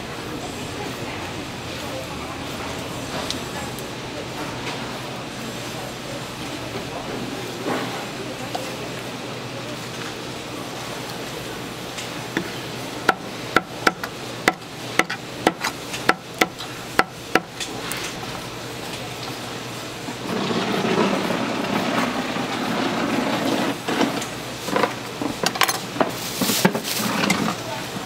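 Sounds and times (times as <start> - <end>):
loud rough noise: 20.0 - 25.0.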